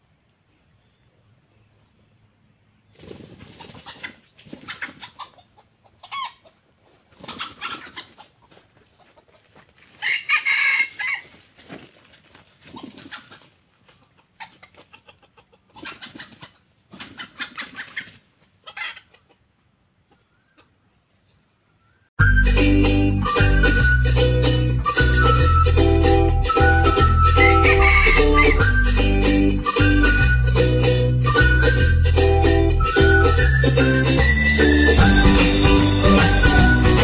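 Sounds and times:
birds flapping wings: 3.0 - 5.0.

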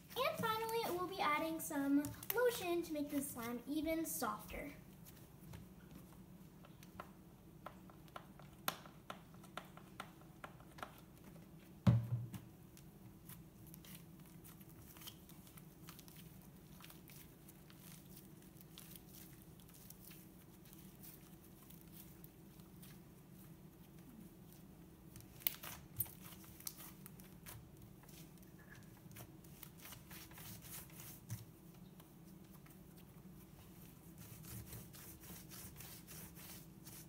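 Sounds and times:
small crackles and pops: 6.6 - 11.6, 12.4 - 23.1, 23.8 - 30.2
slime kneaded by hand: 12.6 - 37.0.

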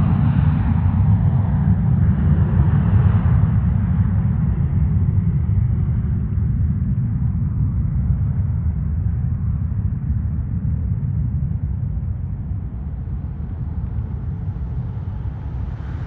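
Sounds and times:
wind buffeting microphone: 0.0 - 16.0
distant jet engines roaring: 8.4 - 16.0.

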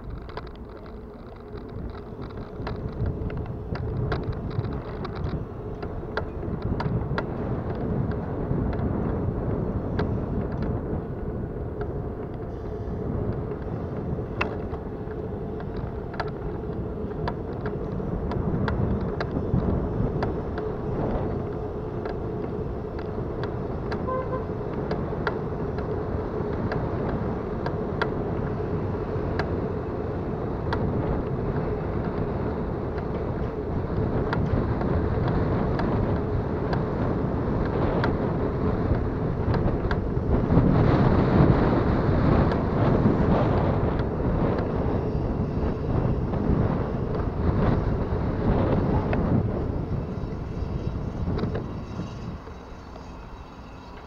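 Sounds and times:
bicycle drivetrain clicks and rattles: 0.0 - 54.0
bicycle rolling rumble: 0.0 - 54.0.

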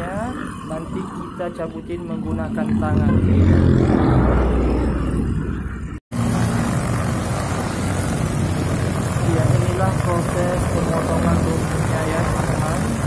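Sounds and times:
brush cutter engine running: 6.2 - 13.0.

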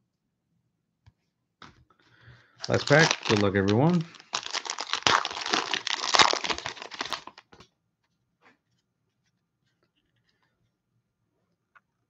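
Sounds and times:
plastic wrapper crinkling and tearing: 2.6 - 7.5.

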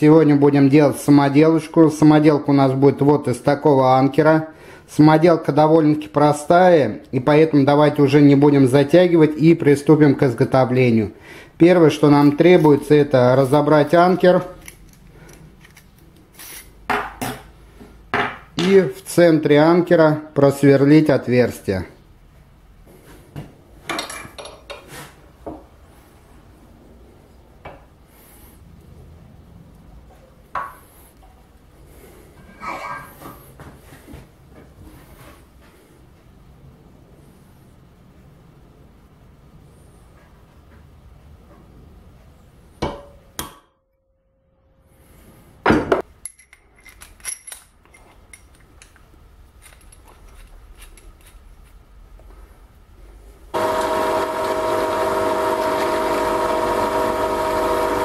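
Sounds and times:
metallic clinks of parts handled: 46.2 - 51.4.

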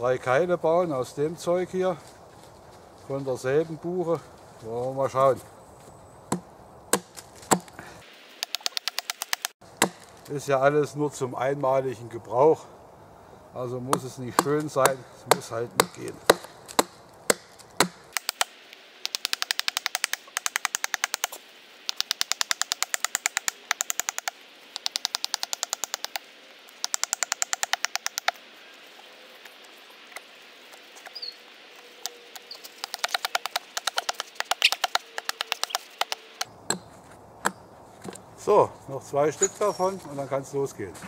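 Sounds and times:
hatchet chopping wood: 6.3 - 7.8, 8.4 - 10.1, 13.9 - 26.2, 26.8 - 28.4, 32.8 - 37.6.

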